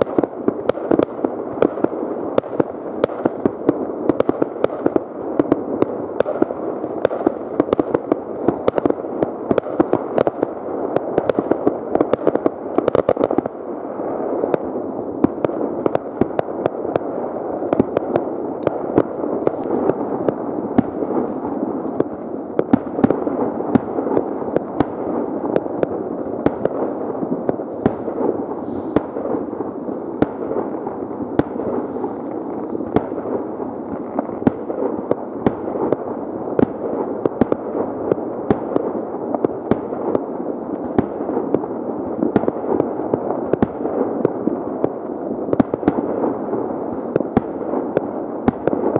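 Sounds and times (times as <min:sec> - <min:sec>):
rumble of distant firework bangs: 0:00.0 - 0:48.9
sharp firecracker cracks: 0:17.7 - 0:46.4.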